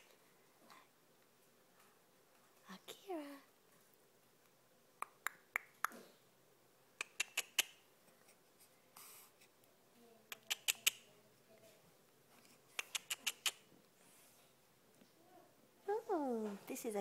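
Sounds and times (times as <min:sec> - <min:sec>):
sharp clicks: 0:07.0 - 0:07.7, 0:10.3 - 0:11.0, 0:12.8 - 0:13.6.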